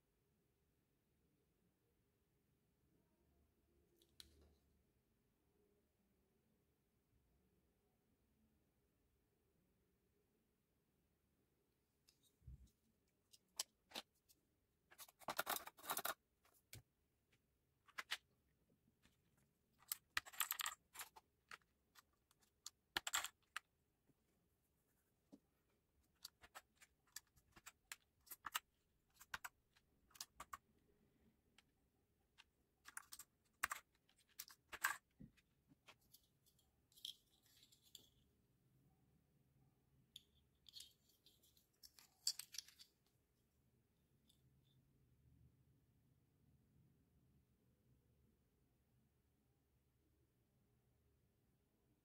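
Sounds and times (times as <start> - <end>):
keycaps clicking and clattering: 14.9 - 16.2, 19.0 - 23.7, 26.1 - 30.6, 32.4 - 35.4.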